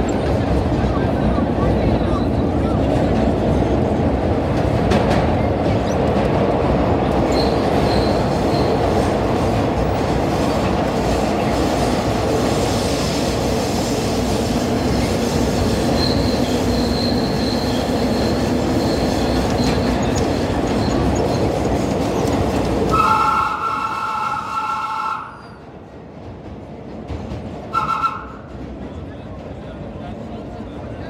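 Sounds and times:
subway wheels and motors running: 0:00.0 - 0:31.0
high wheel squeal: 0:07.3 - 0:08.8, 0:15.8 - 0:21.5, 0:22.9 - 0:25.6.

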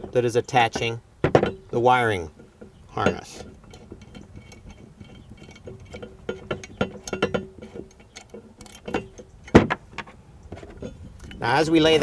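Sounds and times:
small metal clicks and clinks: 0:03.0 - 0:09.6.

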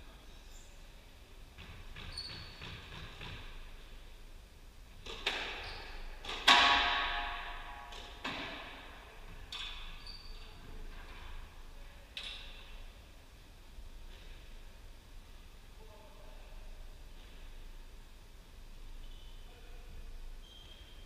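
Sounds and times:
court shoes squeaking: 0:01.6 - 0:03.5, 0:05.0 - 0:06.5, 0:09.5 - 0:10.9, 0:19.0 - 0:19.6, 0:20.4 - 0:21.0.

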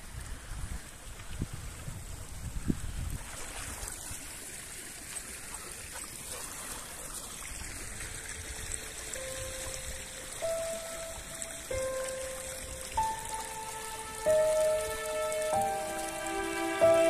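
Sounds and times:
wind buffeting microphone: 0:00.0 - 0:04.2
flowing water rushing: 0:00.0 - 0:17.0.

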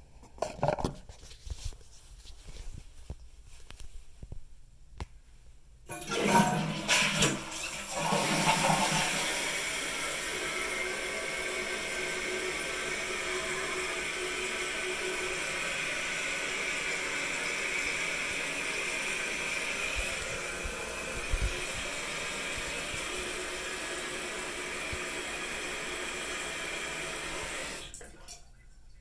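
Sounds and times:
toilet tank refilling hiss: 0:05.9 - 0:28.0.

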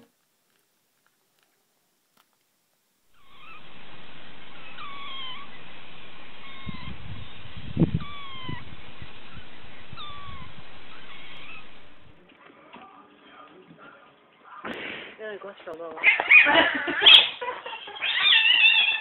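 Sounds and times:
steady hiss: 0:00.0 - 0:12.2
kitten meowing: 0:04.5 - 0:05.6, 0:06.4 - 0:12.0, 0:18.0 - 0:19.0.

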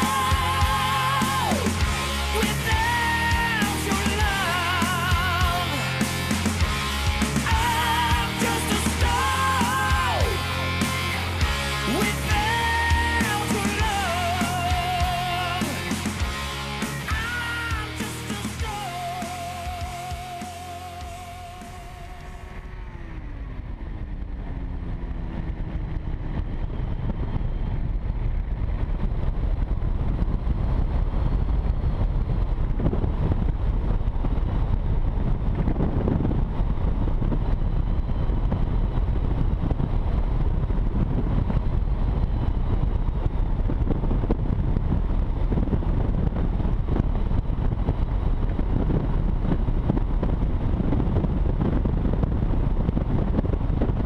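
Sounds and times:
aircraft engine and propeller: 0:00.0 - 0:54.0
heavy wind rush: 0:00.0 - 0:54.0.

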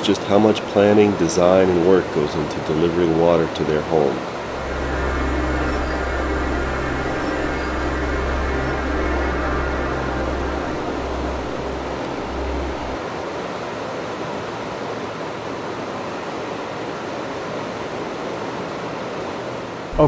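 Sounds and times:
low hum: 0:04.4 - 0:13.3.

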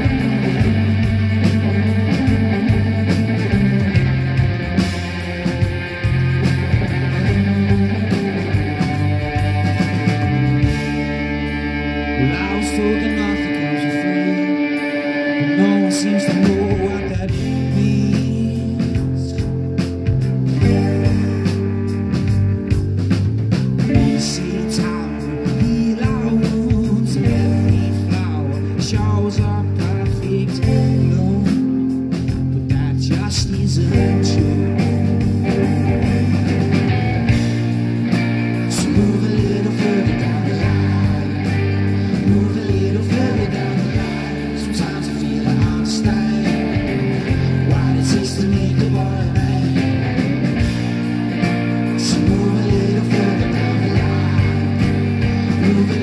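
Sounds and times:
bass guitar: 0:00.0 - 0:56.0
drum kit: 0:00.0 - 0:56.0
electric guitar: 0:00.0 - 0:56.0
person singing: 0:06.5 - 0:19.7, 0:23.9 - 0:37.6, 0:38.2 - 0:56.0.

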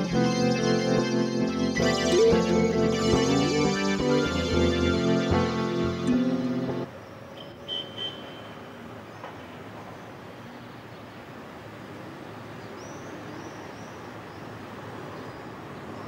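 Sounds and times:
music sting: 0:00.0 - 0:06.9
distant city traffic hum: 0:00.0 - 0:16.0.

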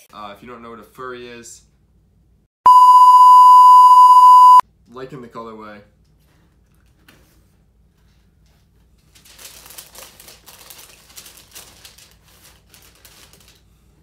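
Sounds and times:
paper rustling and crinkling: 0:06.8 - 0:14.0.

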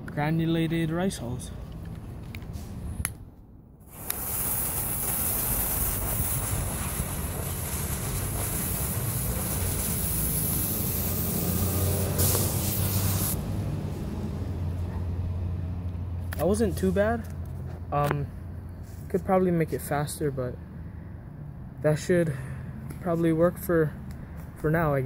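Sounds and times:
firework burst whoosh: 0:03.8 - 0:13.4
fuse hissing: 0:03.9 - 0:13.4.

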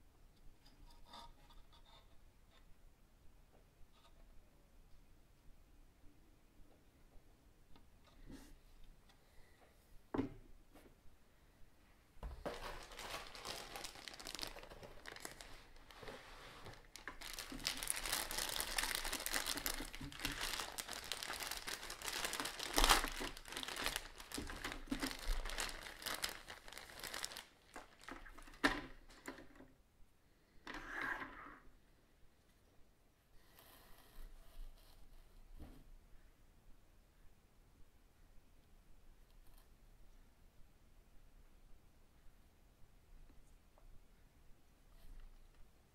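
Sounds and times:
plastic bag crinkling: 0:12.4 - 0:29.2.

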